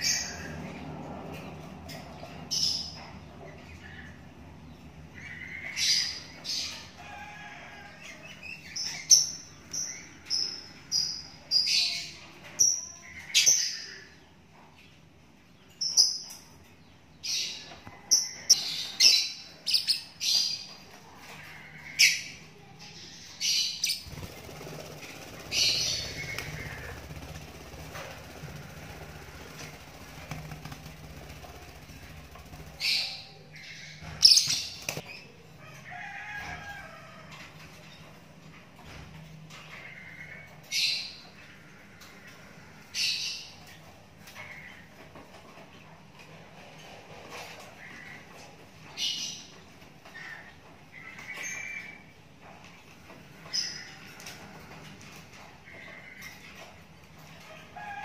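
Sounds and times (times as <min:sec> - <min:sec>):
bird chick chirping: 0:23.3 - 0:35.1.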